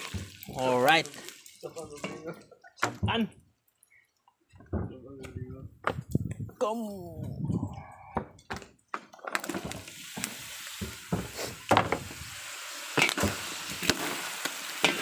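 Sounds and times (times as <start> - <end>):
food sizzling in a wok: 0.0 - 2.1, 9.4 - 15.0
stirring knocks and scrapes: 0.0 - 6.6, 7.2 - 12.2.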